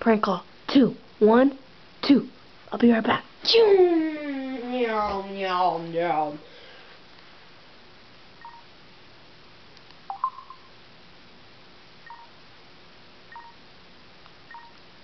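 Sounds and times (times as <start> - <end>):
telephone keypad beeps: 10.1 - 10.7, 12.1 - 12.3, 14.5 - 14.8.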